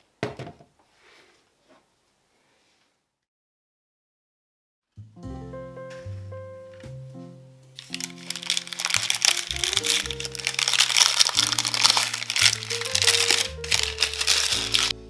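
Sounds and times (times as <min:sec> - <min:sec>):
background music: 0:05.0 - 0:15.0
baking parchment crinkling: 0:07.8 - 0:14.9.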